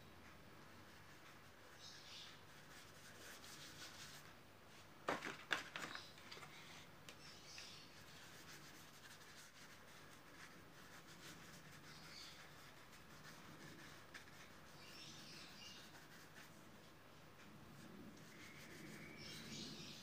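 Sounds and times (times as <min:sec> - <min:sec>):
paintbrush rubbing on painting: 0:00.9 - 0:04.3, 0:07.4 - 0:16.7, 0:17.7 - 0:20.0.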